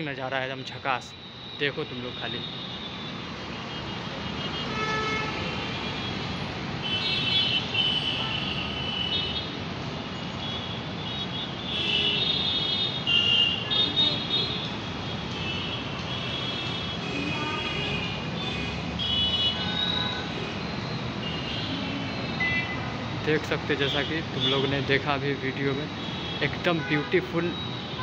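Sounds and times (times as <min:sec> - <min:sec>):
traffic hum: 0:00.0 - 0:28.0
car horns honking: 0:10.4 - 0:20.5, 0:26.0 - 0:28.0.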